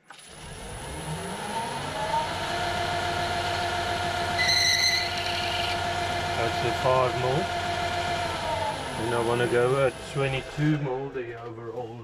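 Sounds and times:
metal lathe motor whining: 0.1 - 11.5
short high squeal: 4.4 - 5.8.

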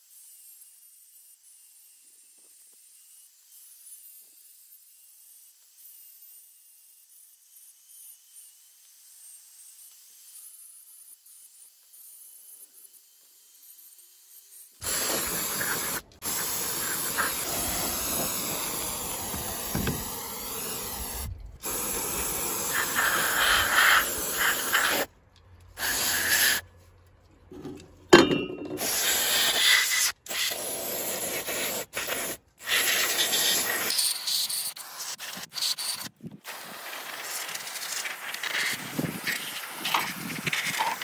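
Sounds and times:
aerosol spray can hissing: 14.8 - 25.1, 25.8 - 26.6, 28.8 - 41.0.

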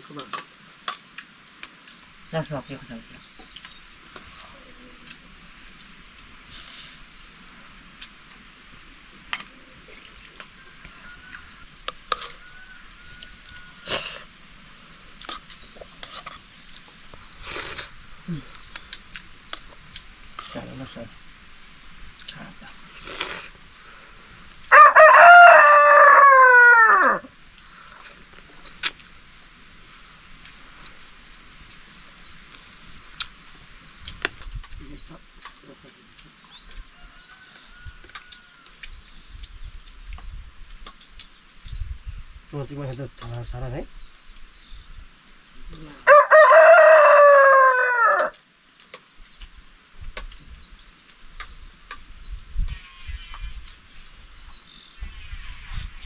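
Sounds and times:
rooster crowing: 10.6 - 14.2, 24.7 - 27.3, 36.9 - 38.8, 46.0 - 48.4.

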